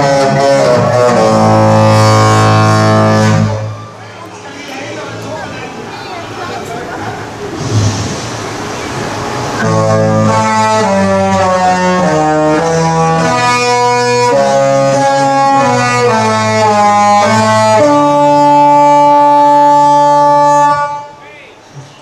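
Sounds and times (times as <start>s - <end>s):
ship horn playing a tune: 0.0s - 4.0s, 9.2s - 21.2s.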